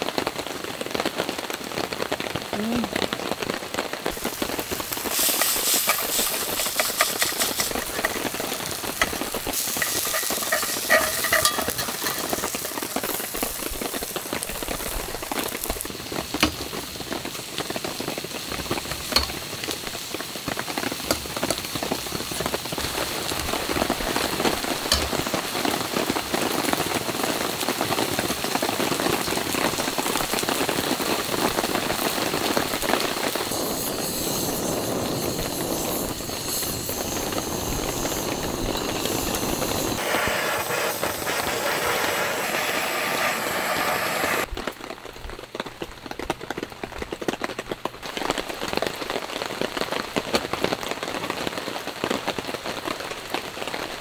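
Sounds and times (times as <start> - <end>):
rain on a tarp: 0.0 - 54.0
steak sizzling in a pan: 4.0 - 44.5.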